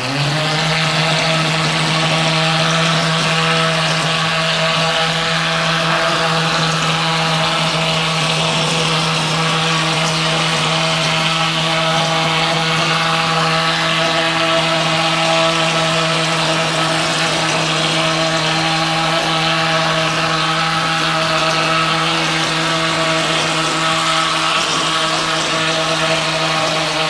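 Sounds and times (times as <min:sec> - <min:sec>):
plaster spraying machine hum: 0:00.0 - 0:27.0.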